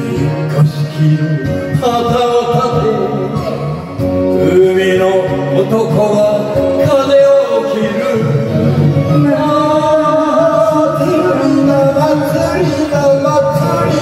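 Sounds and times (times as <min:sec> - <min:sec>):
karaoke backing track: 0:00.0 - 0:14.0
man singing into a microphone: 0:00.0 - 0:14.0.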